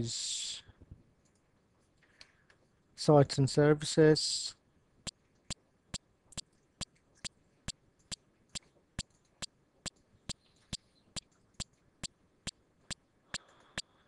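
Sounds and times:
faint sharp clicks: 13.3 - 13.9.

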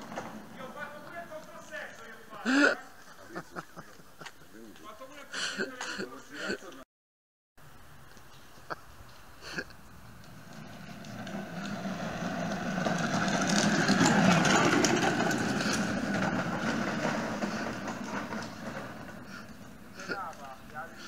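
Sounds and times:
toy car rattling over asphalt: 0.0 - 2.6, 9.0 - 21.0.

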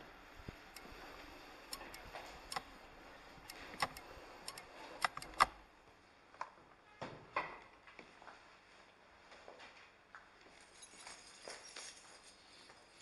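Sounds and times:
sharp clicks and knocks: 3.4 - 5.6.

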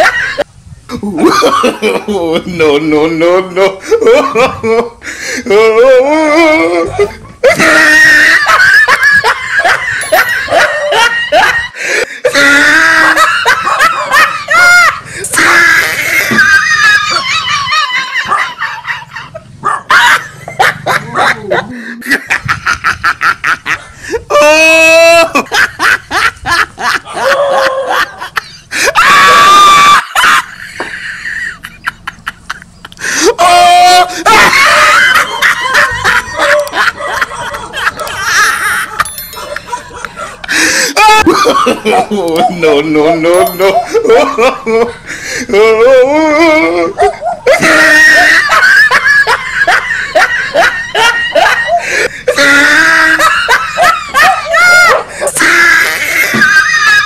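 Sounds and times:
people laughing: 0.0 - 57.0
long high cry: 5.5 - 19.2, 24.2 - 25.6, 26.8 - 30.7, 33.2 - 44.9, 45.5 - 57.0
people screaming: 5.5 - 20.4, 24.2 - 25.7, 26.9 - 31.2, 33.1 - 57.0.

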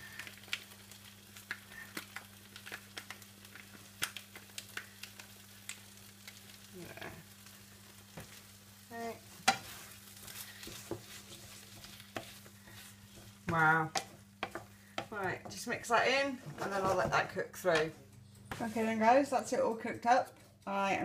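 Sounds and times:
sauce sizzling in a frying pan: 0.0 - 16.4.

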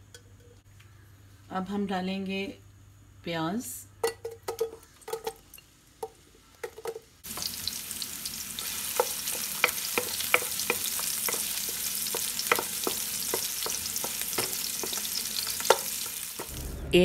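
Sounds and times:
onions sizzling in ghee: 4.8 - 16.6.

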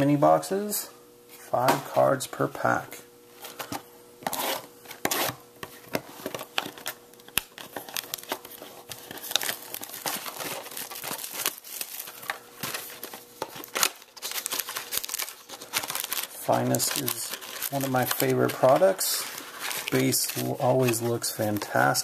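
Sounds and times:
plastic wrap crinkling and tearing: 6.3 - 22.0.

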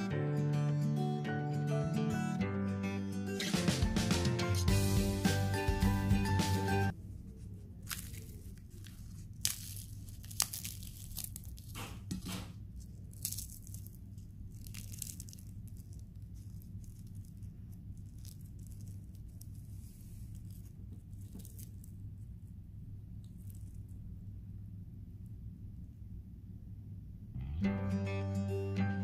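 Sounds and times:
low steady hum: 4.7 - 29.0
crisp pancake tearing and crackling: 7.8 - 22.1.

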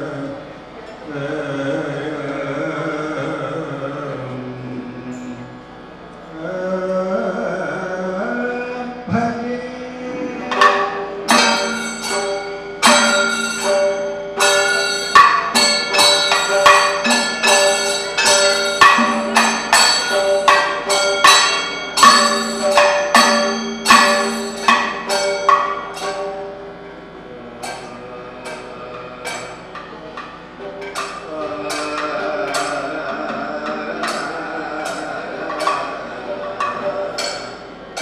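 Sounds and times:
held low tones: 0.0 - 38.0
percussion music with ringing gong: 10.5 - 38.0.

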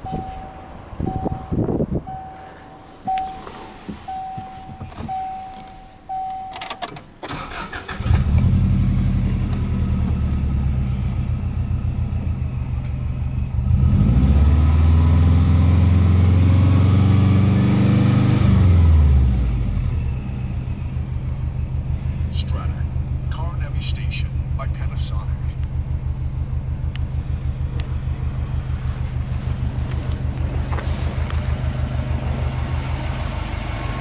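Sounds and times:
car warning chime beeping: 0.0 - 7.9
car engine starting and idling: 0.0 - 34.0
car engine revving: 7.3 - 34.0.

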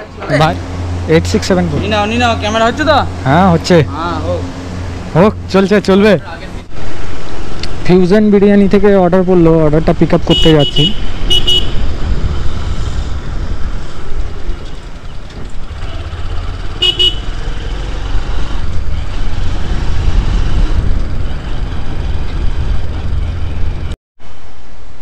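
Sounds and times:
motorcycle engine: 0.2 - 8.6, 10.7 - 24.0
horn toot: 10.3 - 11.9, 16.8 - 17.4
wind rumble on microphone: 11.0 - 15.7, 18.0 - 24.0.

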